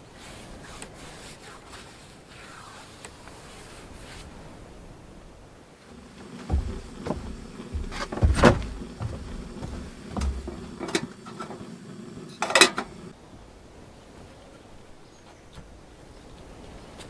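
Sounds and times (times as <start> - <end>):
low steady hum: 5.8 - 13.6
footsteps on wooden floor: 5.9 - 11.6.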